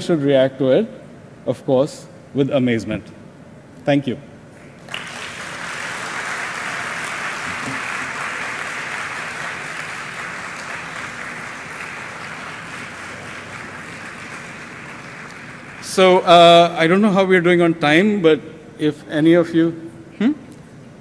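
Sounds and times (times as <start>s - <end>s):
audience applauding: 4.7s - 16.4s.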